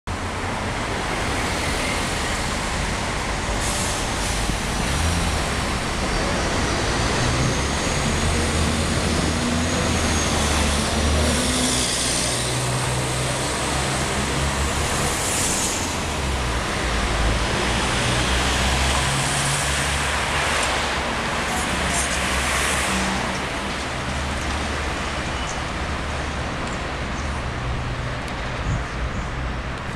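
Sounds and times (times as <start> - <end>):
city traffic noise: 0.1 - 29.9.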